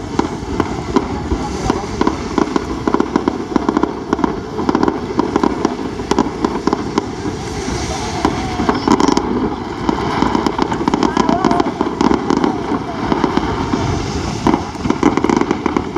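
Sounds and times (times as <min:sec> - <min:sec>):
fireworks bangs and crackles: 0:00.0 - 0:15.9.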